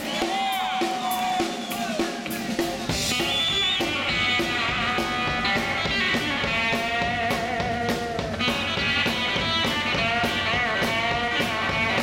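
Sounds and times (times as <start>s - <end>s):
steady drum beat: 0.0s - 12.0s
bass guitar: 1.1s - 12.0s
electric guitar lead: 2.7s - 12.0s.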